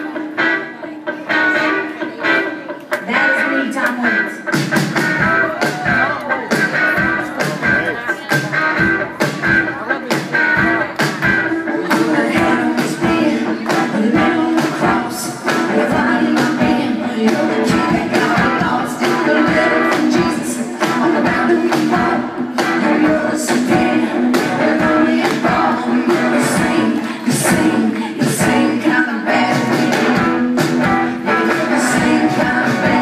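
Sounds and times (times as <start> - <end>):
drums keeping a beat: 0.0 - 33.0
guitar strumming: 0.0 - 33.0
person singing: 0.0 - 33.0.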